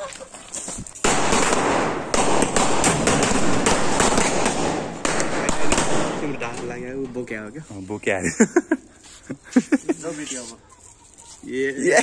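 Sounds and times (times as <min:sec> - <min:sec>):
firecracker crackling with pops: 0:00.7 - 0:07.6.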